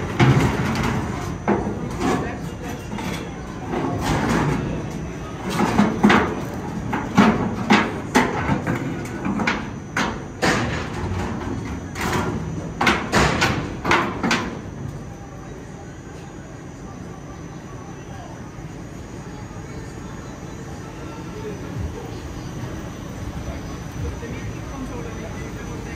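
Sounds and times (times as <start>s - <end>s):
metal clanks and knocks: 0.0s - 4.6s.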